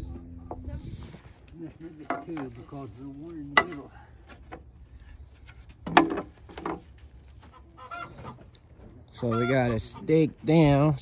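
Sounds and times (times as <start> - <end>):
wooden stakes knocking together: 1.9 - 4.8, 5.4 - 7.5.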